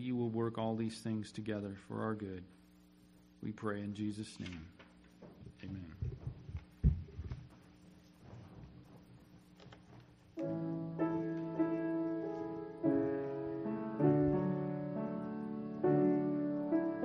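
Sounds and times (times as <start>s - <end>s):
piano playing hymn chords: 10.4s - 17.0s.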